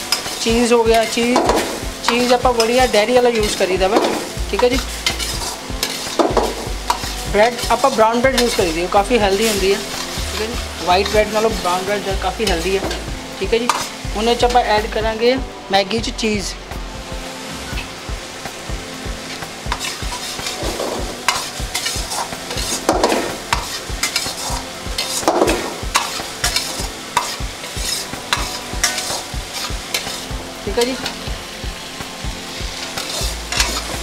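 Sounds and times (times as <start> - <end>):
metal ladle scraping a wok: 0.0 - 11.4, 19.3 - 30.3, 32.6 - 34.0
noodles sizzling: 0.0 - 34.0.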